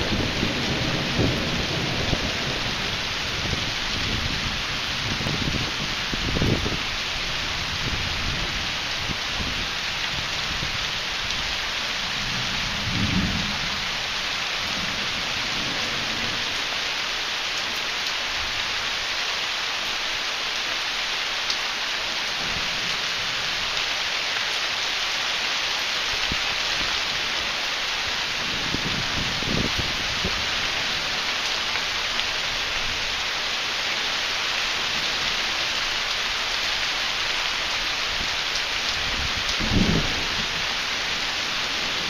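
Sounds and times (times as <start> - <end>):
low roll of thunder: 0.0 - 6.8, 12.1 - 13.9, 39.1 - 40.7
steady rain falling: 0.0 - 42.0.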